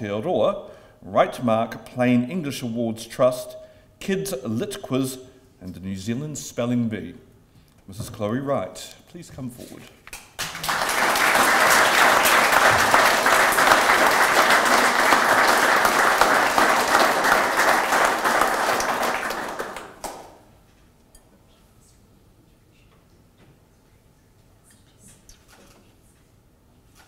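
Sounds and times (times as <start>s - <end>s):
audience applauding: 10.2s - 20.4s.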